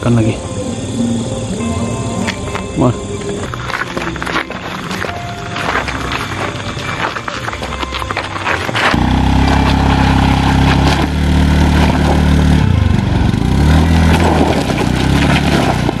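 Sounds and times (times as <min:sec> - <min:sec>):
small motorcycle engine revving: 0:08.8 - 0:16.0.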